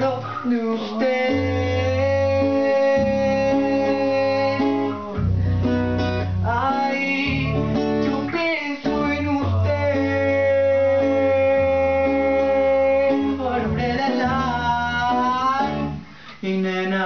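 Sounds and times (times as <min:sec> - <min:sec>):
electric guitar strumming: 0:00.0 - 0:16.3
acoustic guitar strumming: 0:00.0 - 0:17.0
man singing: 0:00.0 - 0:17.0.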